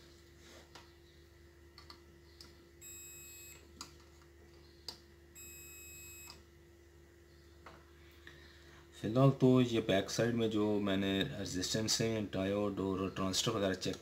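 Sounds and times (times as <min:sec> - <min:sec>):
multimeter high-pitched beeps: 0:02.8 - 0:03.6, 0:05.4 - 0:06.4.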